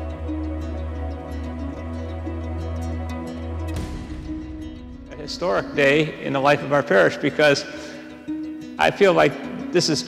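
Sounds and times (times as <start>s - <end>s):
low bass drone: 0.0s - 6.8s
slow instrumental music: 0.0s - 10.0s.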